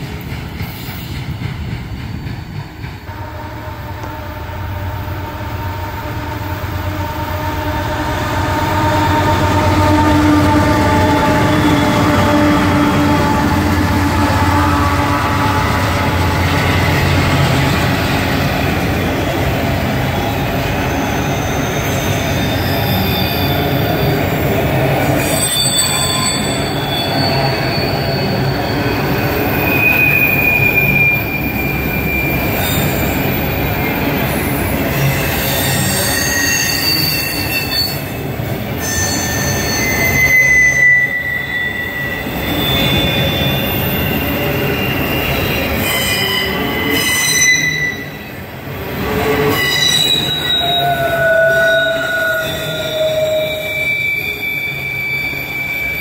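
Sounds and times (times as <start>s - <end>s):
train wheels rumbling on rail: 0.0s - 56.0s
high-pitched wheel squeals: 20.8s - 24.2s, 25.1s - 38.2s, 38.8s - 48.3s, 49.3s - 56.0s.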